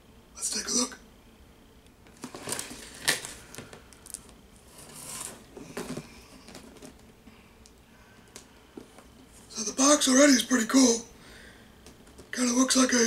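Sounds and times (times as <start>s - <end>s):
cardboard box scraping and rustling: 4.7s - 7.0s.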